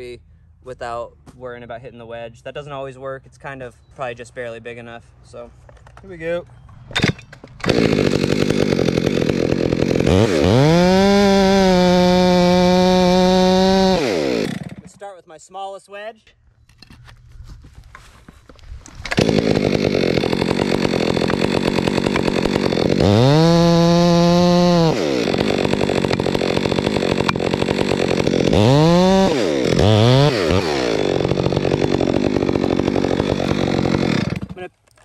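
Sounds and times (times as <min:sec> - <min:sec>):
chainsaw revving: 0:07.0 - 0:14.9, 0:18.9 - 0:34.7.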